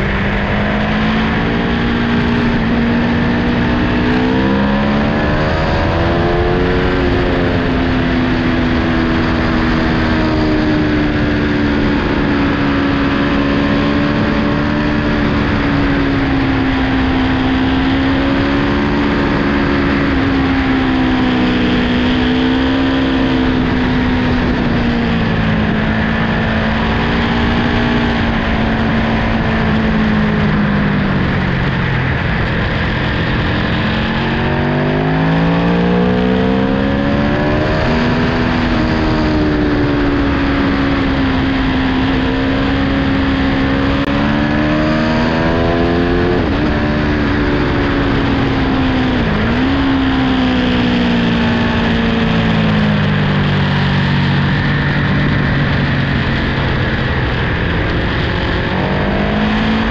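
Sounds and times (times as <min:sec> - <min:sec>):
motorcycle engine: 0:00.0 - 0:59.9
wind noise: 0:00.0 - 0:59.9.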